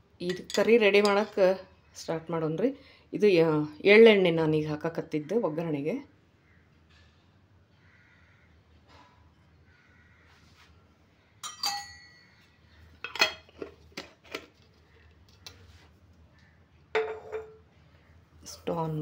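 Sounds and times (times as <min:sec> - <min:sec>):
steel containers clinking together: 0:00.2 - 0:01.4, 0:11.4 - 0:12.3.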